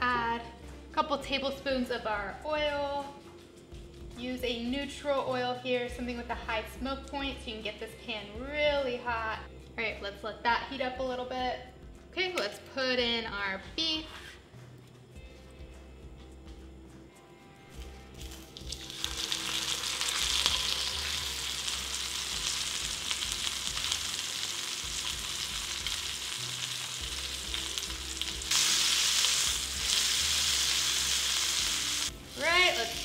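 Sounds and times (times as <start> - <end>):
meat sizzling in a skillet: 17.8 - 33.0.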